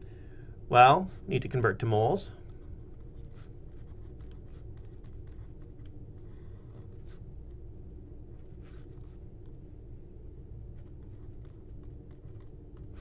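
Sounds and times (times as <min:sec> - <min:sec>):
low steady hum: 0:00.0 - 0:13.0
stylus scratching and tapping screen: 0:01.3 - 0:07.7, 0:10.7 - 0:13.0.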